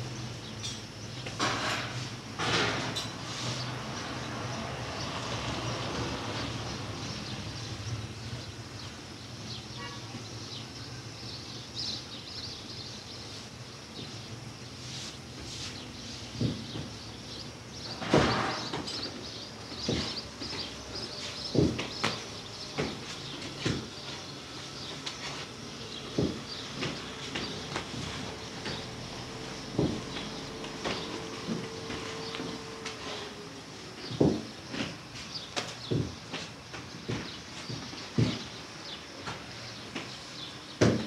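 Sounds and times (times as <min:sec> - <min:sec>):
knocks and clatter of tools and trays: 0:00.6 - 0:03.8, 0:17.9 - 0:24.3, 0:24.9 - 0:33.4, 0:34.0 - 0:38.6.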